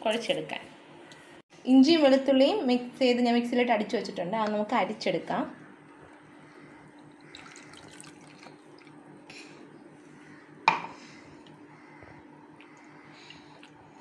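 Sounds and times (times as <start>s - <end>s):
liquid dripping through strainer: 7.0s - 9.0s.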